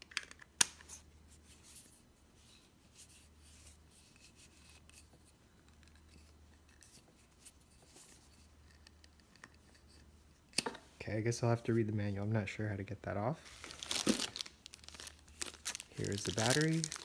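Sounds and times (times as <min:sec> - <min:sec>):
low steady hum: 0:00.1 - 0:17.0
hands rubbing and scraping lens: 0:00.8 - 0:10.5.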